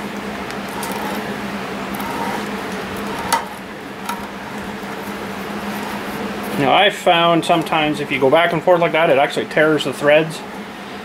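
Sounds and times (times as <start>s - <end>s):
threading die scraping metal: 0.7s - 6.7s.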